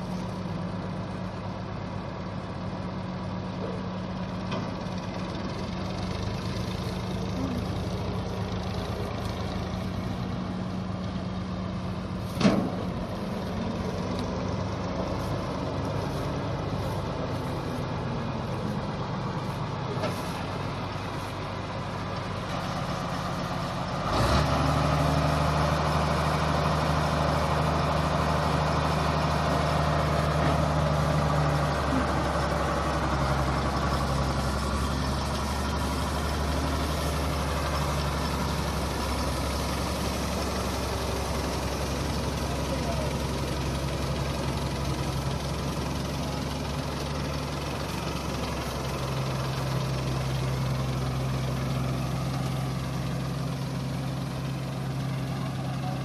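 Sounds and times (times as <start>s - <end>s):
deep engine hum: 0.0s - 56.0s
diesel engines running: 0.0s - 56.0s.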